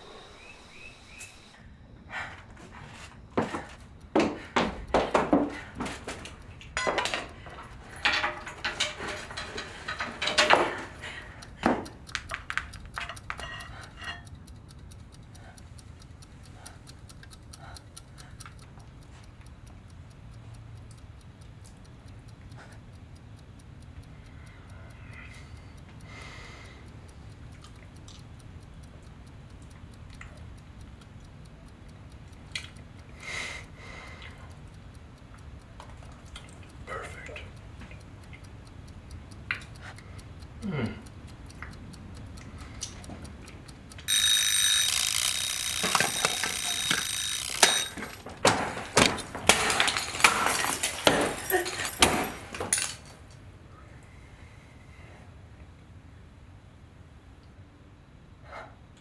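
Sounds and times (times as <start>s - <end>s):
knocks and rustling of handling: 2.7s - 11.0s, 47.9s - 53.2s
clock ticking: 3.4s - 53.3s.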